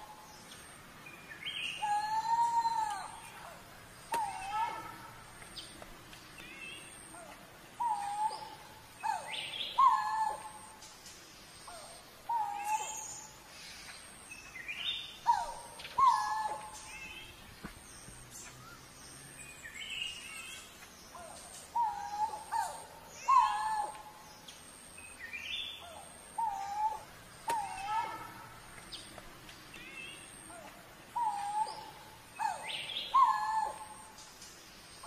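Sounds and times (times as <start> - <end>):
cuckoo whistled calls: 1.4 - 5.0, 6.4 - 10.8, 11.6 - 13.7, 14.6 - 17.3, 19.7 - 24.2, 25.2 - 29.0, 29.7 - 34.3.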